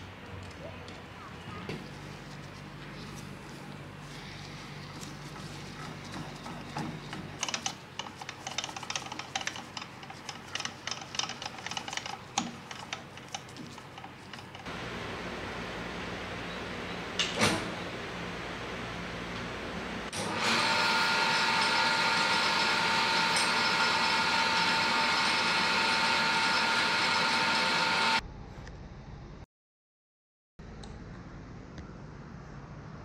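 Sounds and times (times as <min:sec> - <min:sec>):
shop hum: 0:00.0 - 0:29.4
electric machine motor whining: 0:19.8 - 0:28.2.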